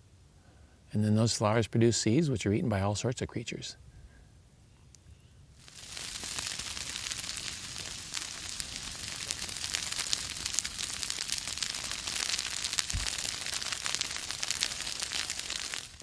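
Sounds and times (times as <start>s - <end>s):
fire crackling: 5.5s - 16.0s
fire rushing hiss: 5.6s - 16.0s.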